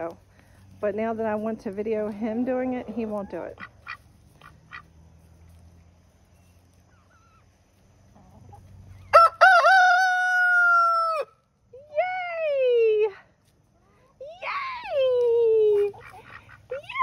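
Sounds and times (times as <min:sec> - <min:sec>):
rooster crowing: 0:09.0 - 0:11.4.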